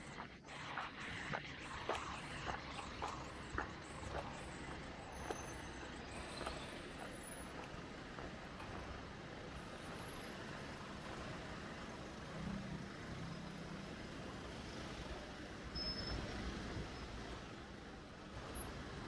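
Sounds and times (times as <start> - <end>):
cars driving slowly past: 0.0 - 19.0.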